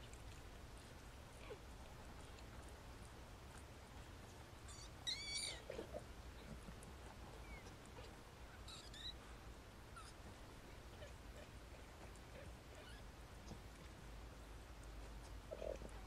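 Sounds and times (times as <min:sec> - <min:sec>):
kittens mewing: 0:04.6 - 0:06.6.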